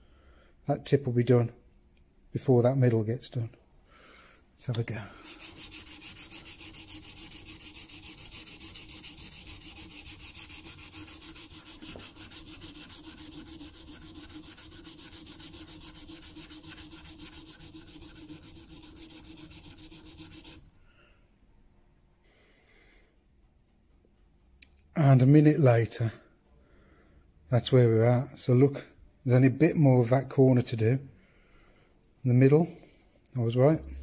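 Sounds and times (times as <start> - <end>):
chisel scraping on diamond plate: 5.2 - 20.6.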